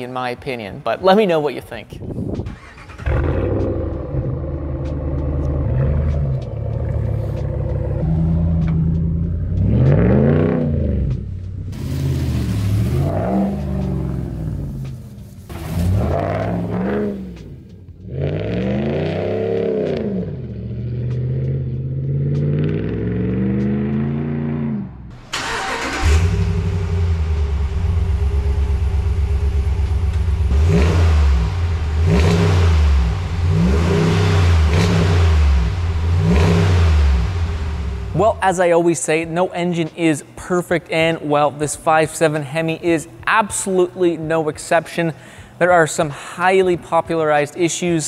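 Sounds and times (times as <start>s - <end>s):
car engine revving: 2.3s - 38.4s.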